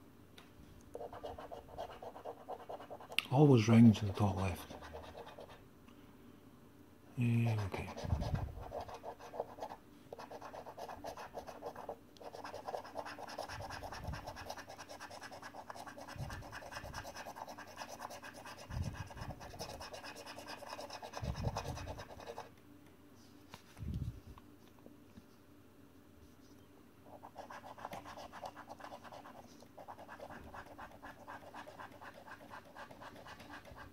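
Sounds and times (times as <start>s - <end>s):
coin scratching scratchcard: 27.3s - 33.8s.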